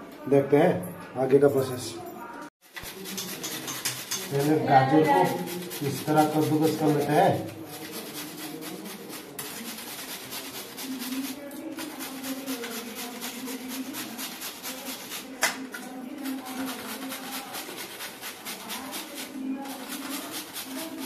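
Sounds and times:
carrot grating rasping strokes: 2.6 - 15.3.

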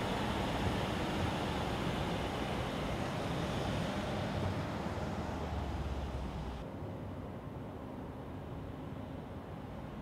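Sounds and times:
wide rushing noise: 0.0 - 6.6.

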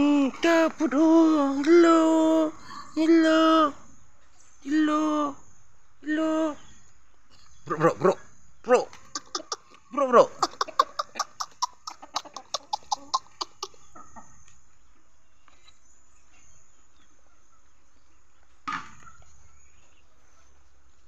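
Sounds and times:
rooster clucking: 8.8 - 14.2.

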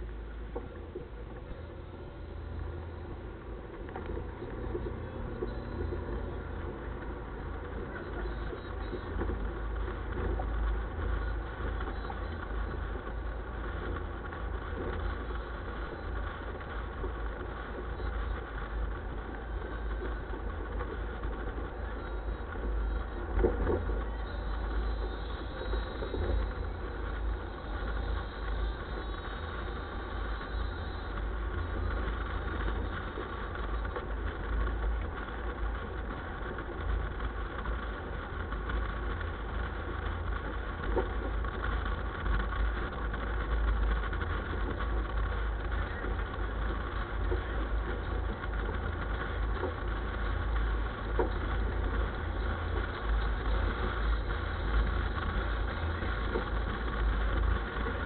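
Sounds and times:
vehicle engine rumbling: 0.0 - 58.0.

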